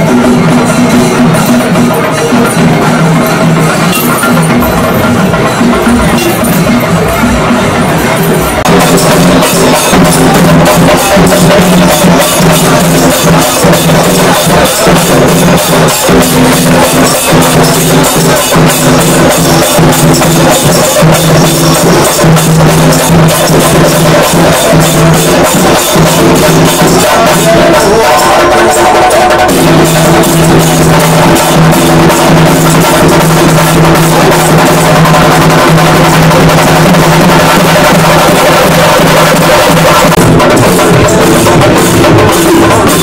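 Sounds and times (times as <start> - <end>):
rapid drumming and hand percussion: 0.0 - 43.0.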